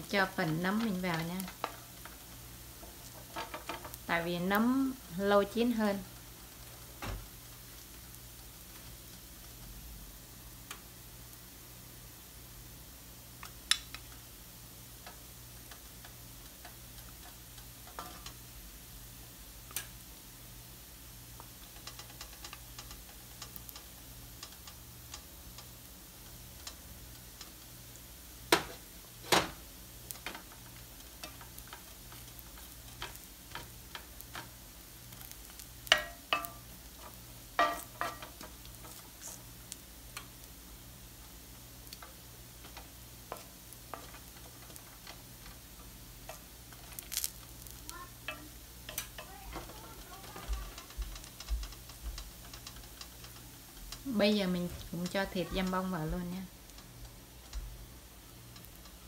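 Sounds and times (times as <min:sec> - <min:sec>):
noodles sizzling in pan: 0:00.0 - 0:59.0
wooden spoon knocking pan: 0:35.9 - 0:36.6, 0:37.6 - 0:38.6.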